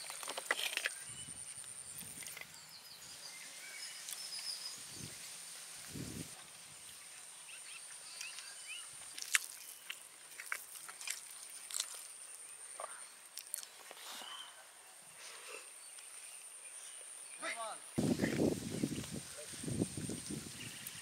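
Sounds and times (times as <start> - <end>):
bird chirps: 0.8 - 5.2, 7.4 - 8.9.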